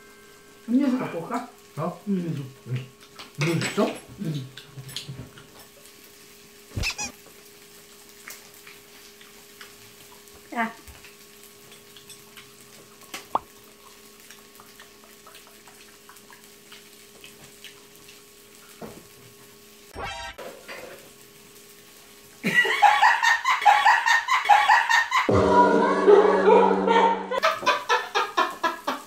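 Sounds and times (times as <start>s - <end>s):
loud music: 25.3s - 27.4s.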